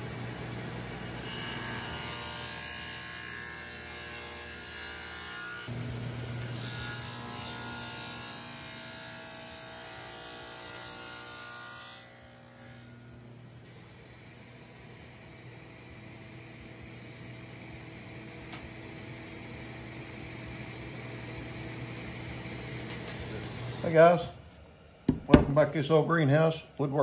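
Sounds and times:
table saw cutting wood: 0.9s - 15.8s.

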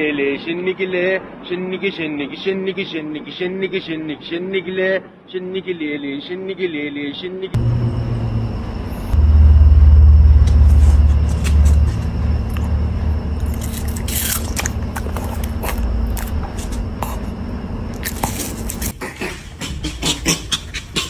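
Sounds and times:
low rumble: 7.6s - 18.9s
dog chewing watermelon: 13.3s - 17.3s, 17.9s - 18.9s.

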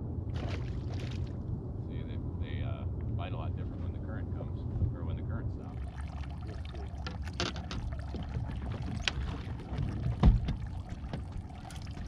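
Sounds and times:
water around a boat: 0.0s - 12.0s
wind: 0.0s - 12.0s
clicks and knocks on a boat: 6.4s - 12.0s
dull thump: 9.8s - 11.3s.

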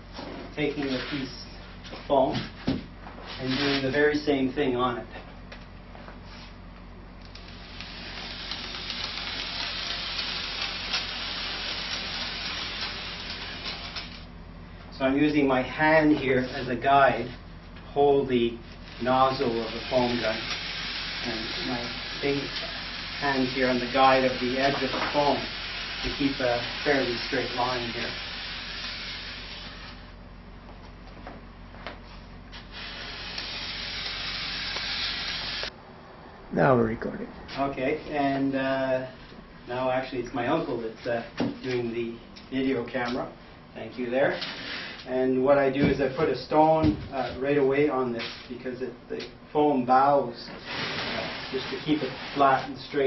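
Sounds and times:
foam gun hissing and crackling: 7.2s - 14.3s, 18.4s - 30.2s, 32.5s - 35.7s, 44.4s - 45.1s, 50.5s - 53.0s.

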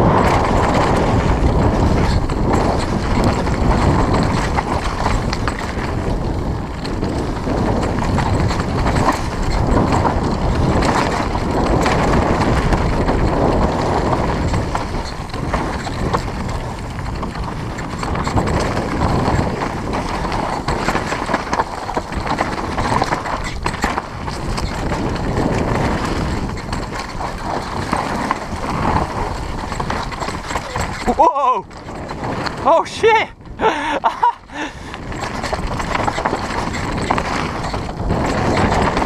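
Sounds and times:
bike rattling and knocking: 0.0s - 39.0s
tyres rumbling on dirt and rocks: 0.0s - 39.0s.

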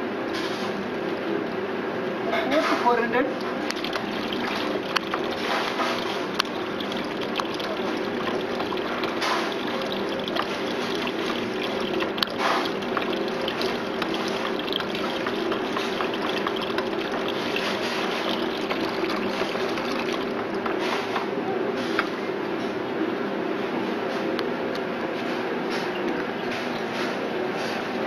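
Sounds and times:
steady background hum: 0.0s - 28.0s
liquid trickling into a bucket: 3.2s - 21.2s.

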